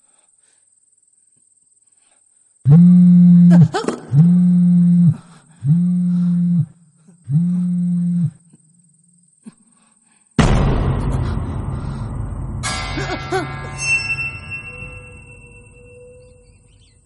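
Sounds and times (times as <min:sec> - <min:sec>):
phone vibrating on hard floor: 0:02.8 - 0:08.4.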